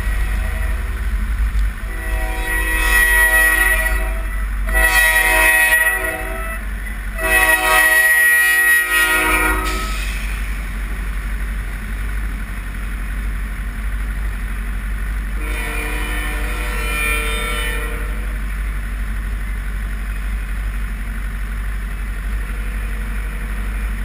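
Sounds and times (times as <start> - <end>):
locomotive air horn: 0.0 - 1.2, 1.8 - 10.5, 15.4 - 18.4
freight cars rumbling past: 0.0 - 24.0.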